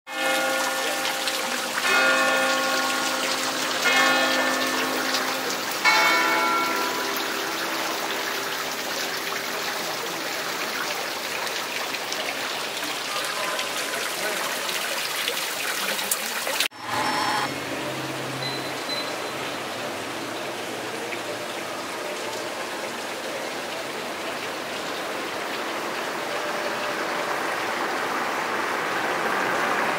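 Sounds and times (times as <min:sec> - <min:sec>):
bell ringing: 0:00.1 - 0:08.5, 0:16.7 - 0:17.6
rushing water noise: 0:00.1 - 0:29.9.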